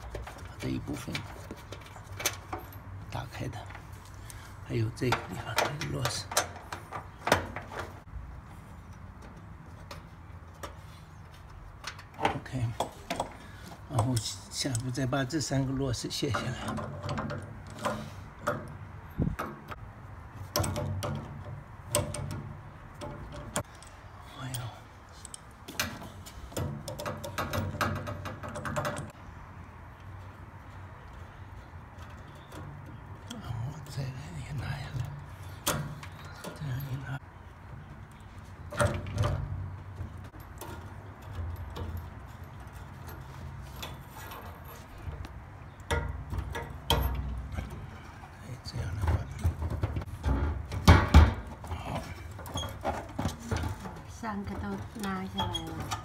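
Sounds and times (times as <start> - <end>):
metal tools clicking on fittings: 13.1 - 15.3
metal knocks: 38.6 - 48.0, 48.8 - 56.0.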